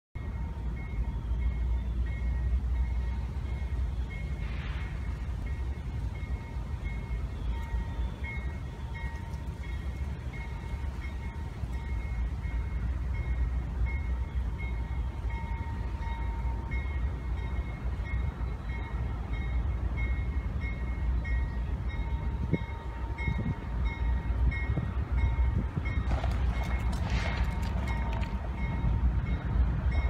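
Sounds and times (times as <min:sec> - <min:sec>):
diesel locomotive rumble: 0:00.2 - 0:30.0
locomotive bell ringing: 0:00.2 - 0:30.0.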